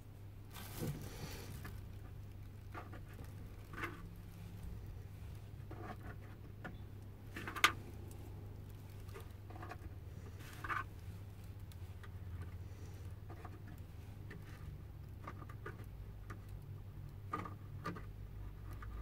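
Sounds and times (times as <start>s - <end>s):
low steady hum: 0.0s - 19.0s
soft rustling: 0.2s - 15.8s.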